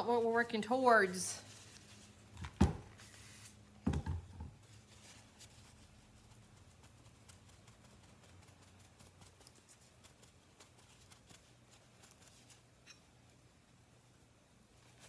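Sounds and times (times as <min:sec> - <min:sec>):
light ticks and rustles: 0:05.0 - 0:13.0.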